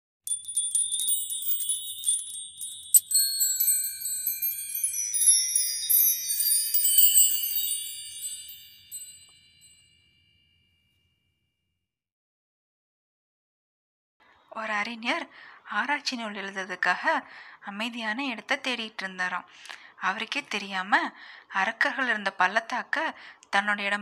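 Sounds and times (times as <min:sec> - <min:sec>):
tinkling chimes: 0:00.3 - 0:10.9.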